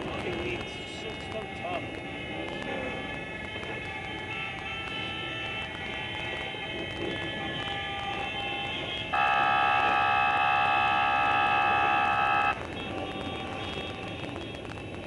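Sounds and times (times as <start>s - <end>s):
street noise: 0.0s - 15.0s
vehicle horn blast: 7.0s - 14.6s.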